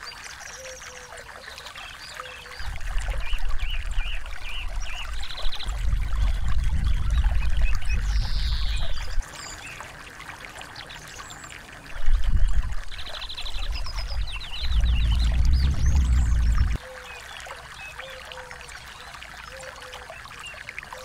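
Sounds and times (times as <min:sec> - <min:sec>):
water trickling over rocks: 0:00.0 - 0:21.0
small birds chirping: 0:12.9 - 0:16.8
low rumble: 0:13.5 - 0:16.8.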